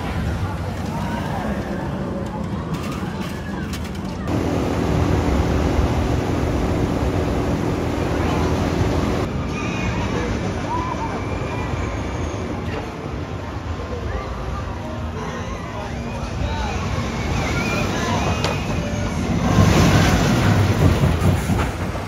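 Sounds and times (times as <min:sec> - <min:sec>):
roller coaster rough rumble: 0:00.0 - 0:11.2, 0:16.8 - 0:22.0
roller coaster train roaring: 0:00.0 - 0:22.0.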